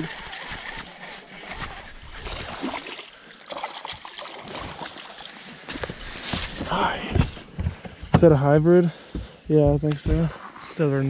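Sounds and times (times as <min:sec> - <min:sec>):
water splashing from hooked fish: 0:00.0 - 0:05.8.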